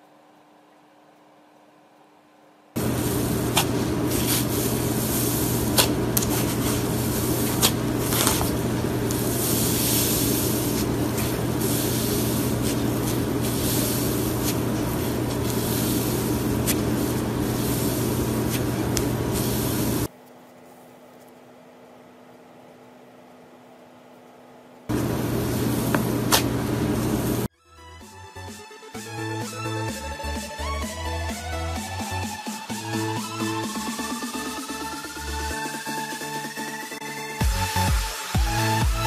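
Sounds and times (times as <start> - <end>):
steady low hum: 0.0 - 27.5.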